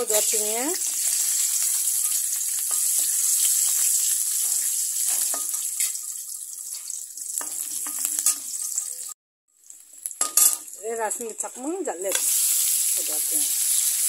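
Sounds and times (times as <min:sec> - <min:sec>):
garlic sizzling in hot oil: 0:00.0 - 0:14.0
steel spoon scraping a wok: 0:00.1 - 0:09.2.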